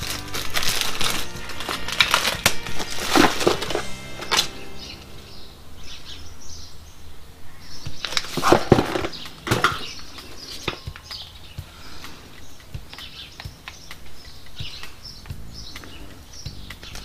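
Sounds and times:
faint bird chirps: 9.0 - 17.0.

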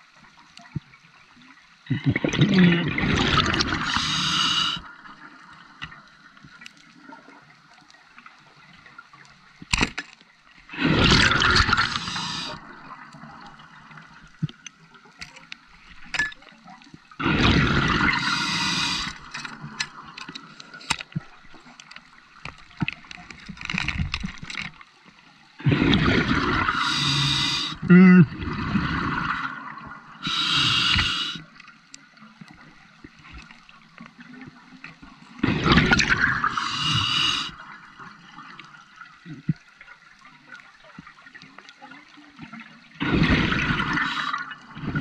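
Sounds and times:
crackle of small clicks: 5.3 - 10.6, 13.0 - 17.1, 18.6 - 25.4, 30.9 - 36.3, 38.4 - 42.8
regulator bubbles rushing out: 10.8 - 12.8, 17.2 - 19.1, 25.7 - 27.5, 43.0 - 45.0.

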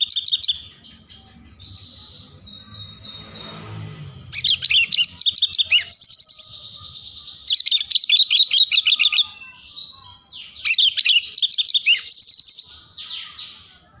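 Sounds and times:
bird singing chirps and trills: 0.0 - 14.0.

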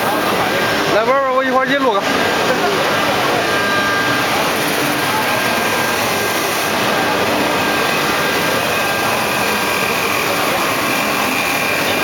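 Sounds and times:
faint steady whine: 0.0 - 12.0
wood-turning lathe cutting: 0.0 - 12.0.

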